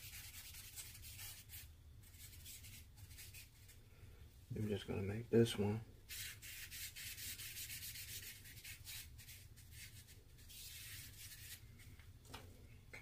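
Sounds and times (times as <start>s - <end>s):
charcoal pencil scratching on paper: 0.0s - 3.8s, 6.1s - 11.6s.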